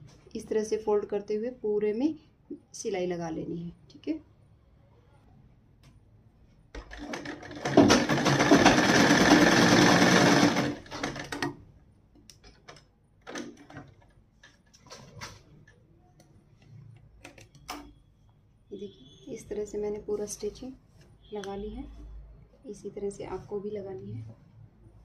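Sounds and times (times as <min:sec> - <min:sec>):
sewing machine running: 0:06.8 - 0:11.6.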